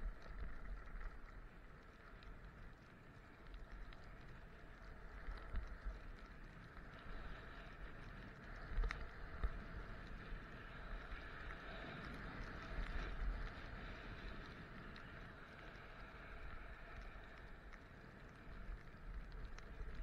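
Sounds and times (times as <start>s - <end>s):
wind rumbling on microphone: 0.0s - 20.0s
skis carving over packed snow: 4.2s - 20.0s.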